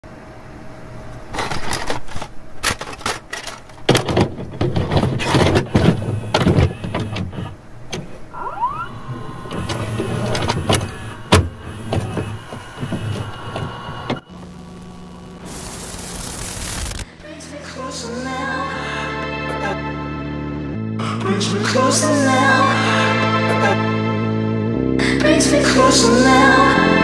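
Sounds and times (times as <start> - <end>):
videotape player clicks and clunks: 1.4 - 8.4, 9.3 - 14.3
tape hiss: 2.0 - 20.6
low motor hum: 4.2 - 17.4
short rising whine: 5.7 - 17.2.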